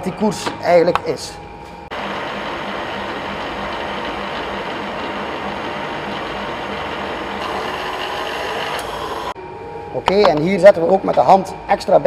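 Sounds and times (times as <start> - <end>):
milling machine power feed running: 1.9 - 9.4.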